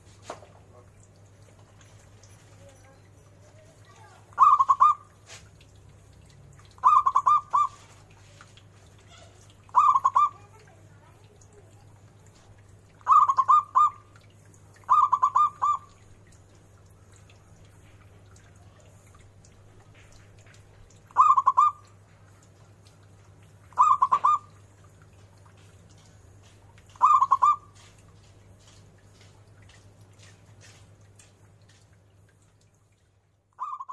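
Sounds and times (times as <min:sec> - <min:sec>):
dove cooing: 0:04.0 - 0:05.4, 0:06.8 - 0:08.0, 0:09.1 - 0:10.7, 0:13.0 - 0:14.2, 0:14.8 - 0:16.0, 0:21.1 - 0:22.4, 0:23.7 - 0:24.7, 0:26.9 - 0:27.9, 0:33.6 - 0:33.9.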